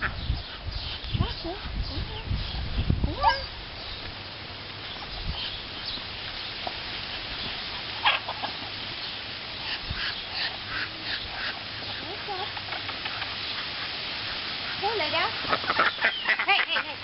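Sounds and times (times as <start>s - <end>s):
domestic fowl calling: 7.9s - 8.9s, 9.6s - 14.0s, 14.6s - 17.0s.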